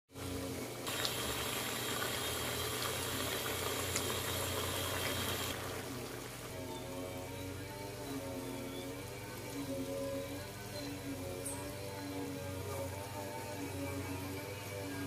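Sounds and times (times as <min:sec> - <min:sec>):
food simmering with bubbling hiss: 0:00.2 - 0:06.6
low steady hum: 0:00.2 - 0:15.0.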